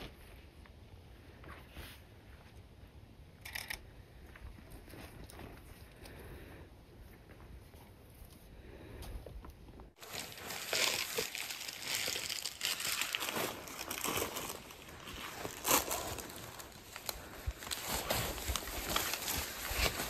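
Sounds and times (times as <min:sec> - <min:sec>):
packs and clothing rustling: 0:10.0 - 0:20.0.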